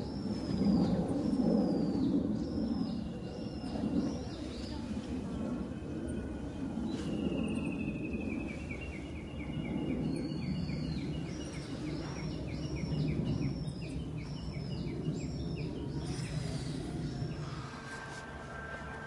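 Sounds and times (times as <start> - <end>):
low background rumble: 0.0 - 19.0.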